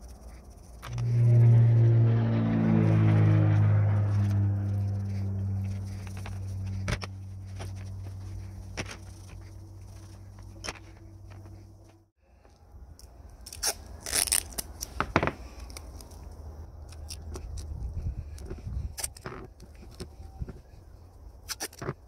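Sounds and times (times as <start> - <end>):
low hum: 0.0 - 12.7
adhesive tape ripping: 13.4 - 16.2.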